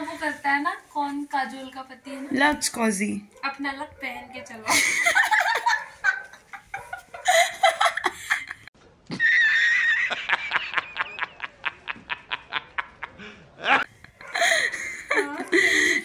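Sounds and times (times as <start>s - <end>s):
women giggling: 4.6s - 16.0s
man laughing loudly: 4.7s - 15.4s.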